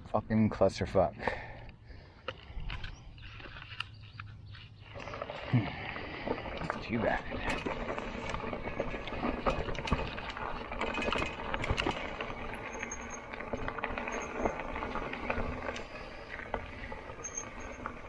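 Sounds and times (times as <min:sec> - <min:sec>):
tyres rumbling on dirt: 0:04.8 - 0:18.0
bike rattles and knocks: 0:06.2 - 0:18.0.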